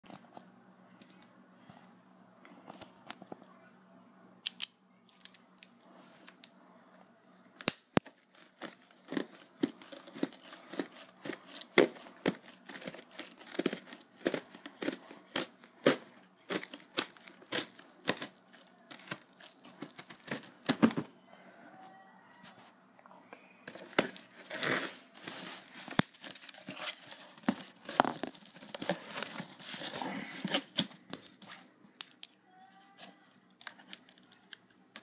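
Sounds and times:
packing tape being slit and torn: 7.6s - 20.9s, 23.7s - 32.3s.

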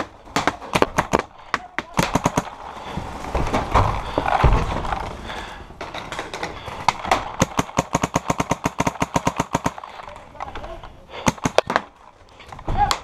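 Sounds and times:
paintball markers firing: 0.0s - 2.5s, 6.8s - 10.0s, 11.2s - 11.9s.

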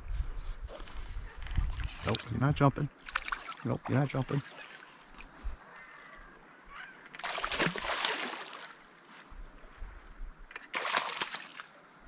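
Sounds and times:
fish thrashing and splashing: 3.0s - 5.4s, 7.2s - 8.8s, 10.6s - 11.7s.

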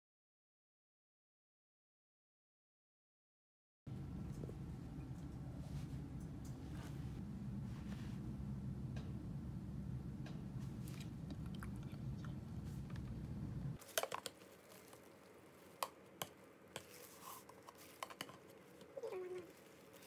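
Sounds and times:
low hum: 3.9s - 13.8s.

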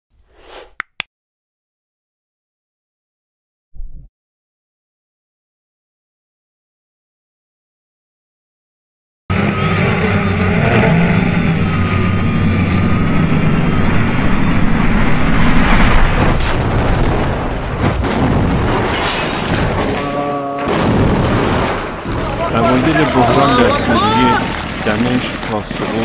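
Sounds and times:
dense low rumble with booms: 11.5s - 20.0s, 20.7s - 26.0s
sharp cracks: 16.2s - 26.0s.

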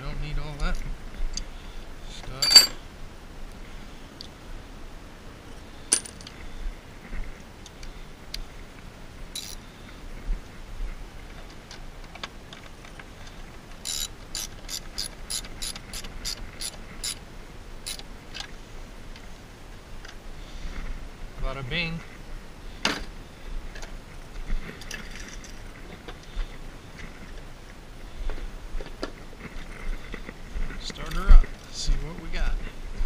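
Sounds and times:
metal tools clinking: 2.1s - 2.9s, 5.9s - 6.3s
socket ratchet clicking: 9.4s - 9.6s, 13.8s - 17.2s, 17.8s - 18.0s.

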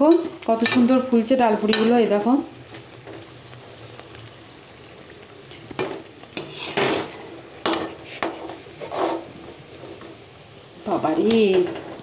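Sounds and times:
food deep-frying in oil: 0.0s - 12.0s
metal utensil scraping a pan: 5.8s - 10.2s.

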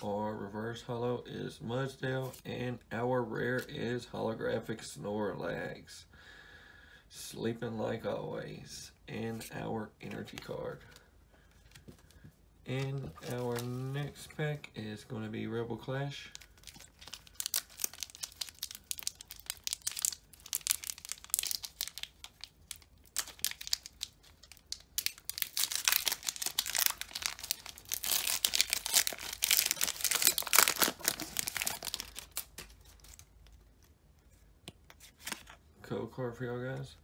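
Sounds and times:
foil wrapper tearing and crinkling: 12.8s - 14.0s, 16.4s - 33.3s.

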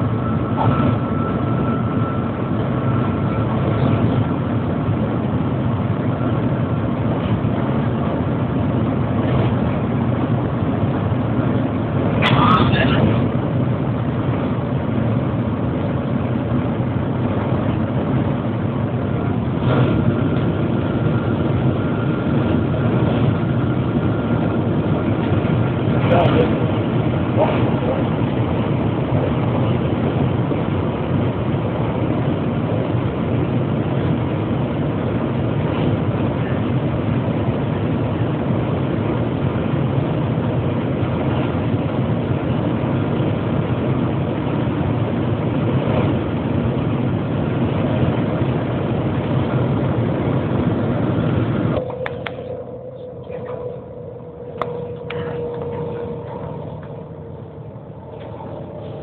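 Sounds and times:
faint steady tone: 0.0s - 4.8s, 51.8s - 59.0s
train cabin rumble and rush: 0.0s - 59.0s
quiet hum: 51.8s - 59.0s.

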